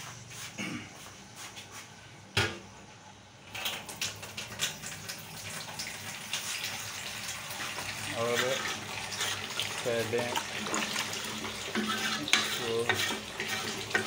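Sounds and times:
curry bubbling and sizzling: 0:03.5 - 0:14.0.

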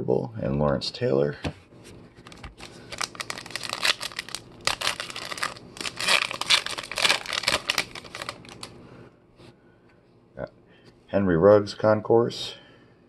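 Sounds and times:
foil wrapper crinkling and tearing: 0:02.2 - 0:08.7.

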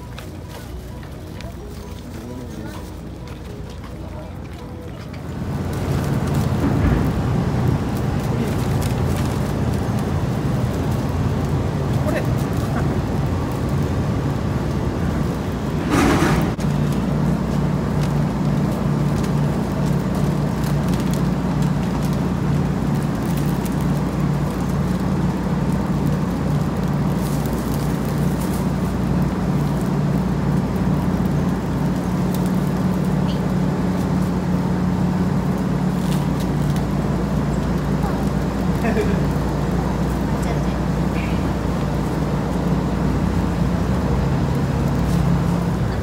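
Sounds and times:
ferry engine droning: 0:00.0 - 0:46.0
brief rush of noise: 0:15.8 - 0:16.6.

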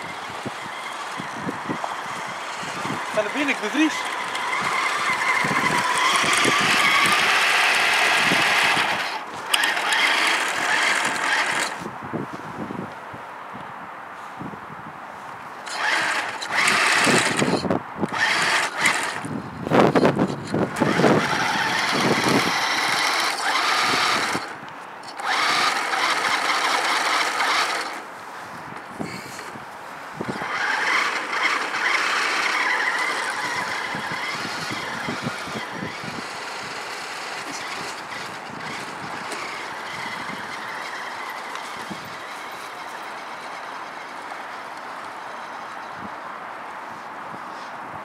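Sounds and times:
model truck motor whining: 0:00.0 - 0:12.0, 0:15.6 - 0:28.1, 0:28.8 - 0:46.1.

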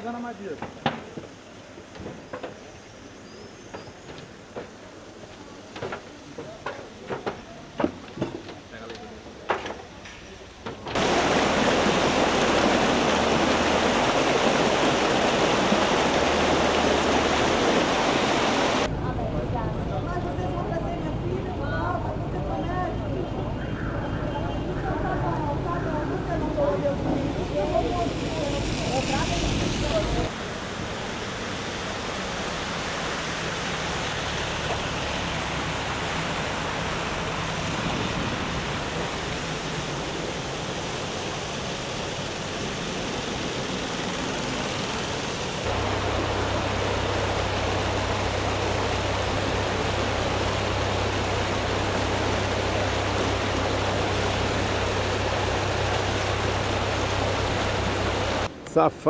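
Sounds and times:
rushing water: 0:00.0 - 0:58.9
steady low hum: 0:45.6 - 0:58.5.

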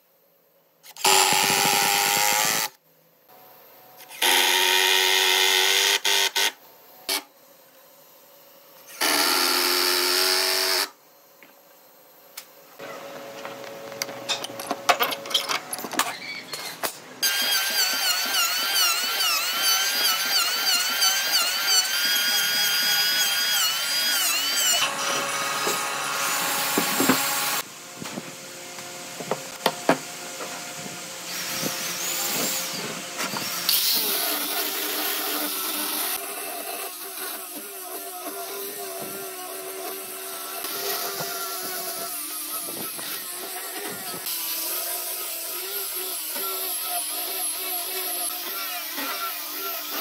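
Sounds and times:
power tool motor whine: 0:00.9 - 0:02.8, 0:08.9 - 0:11.0, 0:15.8 - 0:27.7, 0:30.7 - 0:50.0
angle grinder sanding wood: 0:17.2 - 0:27.7, 0:31.3 - 0:50.0.

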